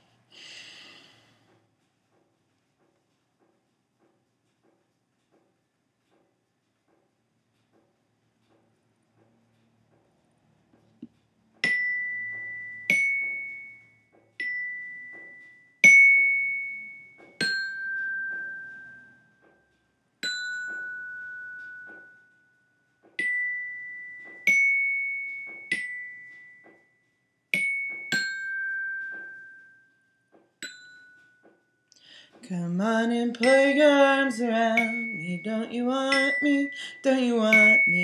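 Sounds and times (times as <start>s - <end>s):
glockenspiel notes ringing: 11.6s - 31.9s, 33.3s - 38.0s.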